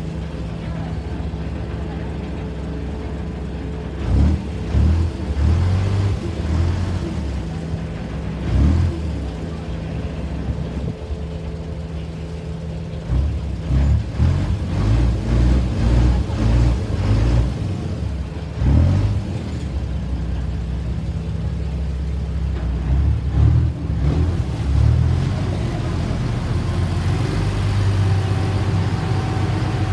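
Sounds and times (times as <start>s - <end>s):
ferry engine running: 0.0s - 29.9s.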